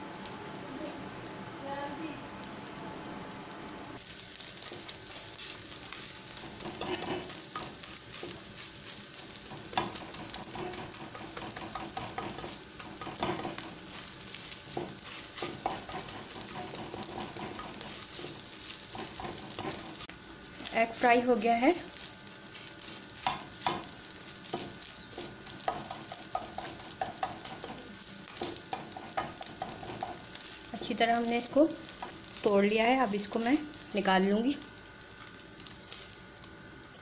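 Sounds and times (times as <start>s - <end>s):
egg sizzling in oil: 2.2s - 37.0s
spatula scraping and knocking pan: 6.4s - 20.1s, 22.8s - 31.0s.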